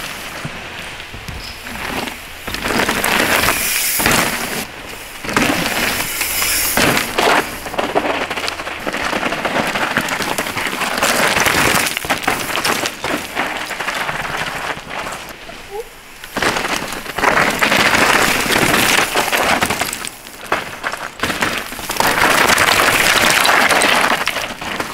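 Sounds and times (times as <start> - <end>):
bike knocking and rattling: 0.0 - 24.9
tyres crunching and skidding on dirt: 0.0 - 24.9.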